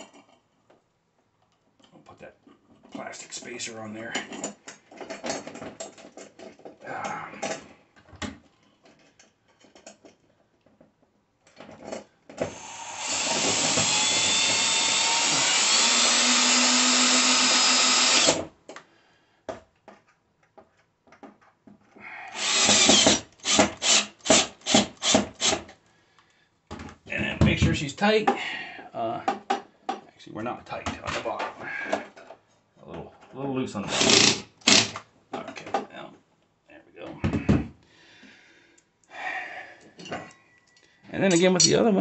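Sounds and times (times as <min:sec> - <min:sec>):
cordless drill driving a bolt: 0:12.4 - 0:18.5, 0:22.3 - 0:25.6, 0:33.9 - 0:35.0.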